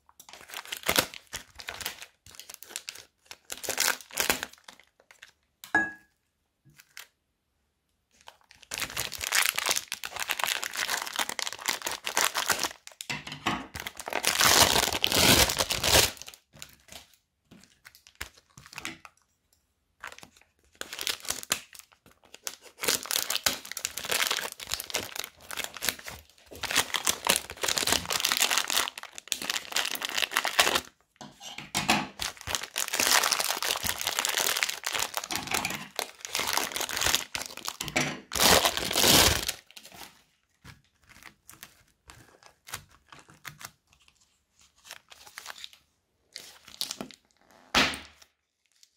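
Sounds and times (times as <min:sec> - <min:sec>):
bags of foam beads crinkling: 0:00.0 - 0:05.5, 0:08.1 - 0:19.1, 0:20.0 - 0:31.0, 0:32.1 - 0:48.9.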